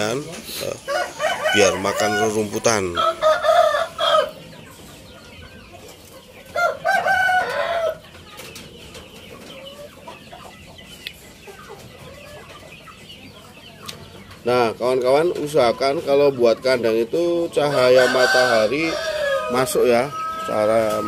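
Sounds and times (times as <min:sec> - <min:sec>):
chickens calling: 0:00.0 - 0:21.0.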